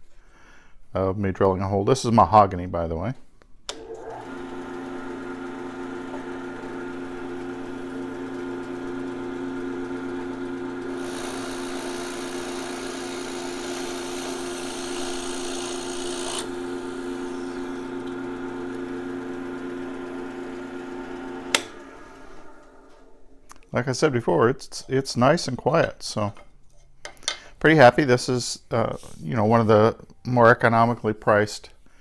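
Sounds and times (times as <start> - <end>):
drill press motor hum: 3.7 - 23.4
drill bit boring into wood: 3.8 - 21.7.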